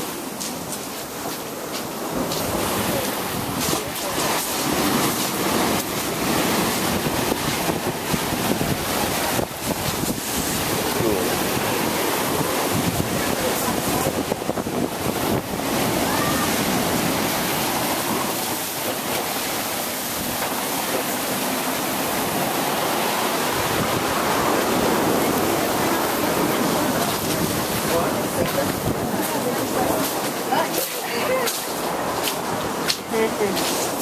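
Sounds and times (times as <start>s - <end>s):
ocean surf breaking: 0.0s - 34.0s
wind buffeting microphone: 2.0s - 33.6s.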